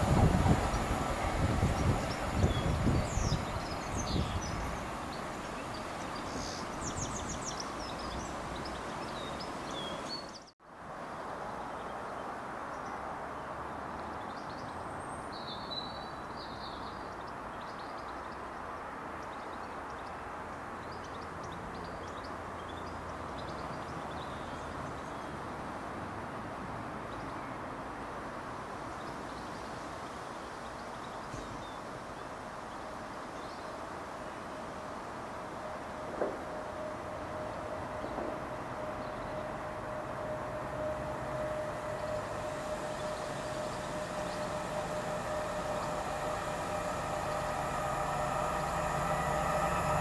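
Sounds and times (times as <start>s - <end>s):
distant diesel locomotive rumble: 0.0s - 10.3s, 32.3s - 50.0s.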